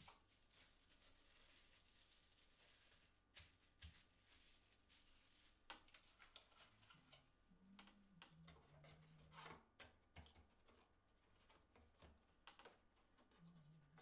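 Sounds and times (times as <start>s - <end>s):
hands handling cardboard packaging: 0.0s - 7.2s.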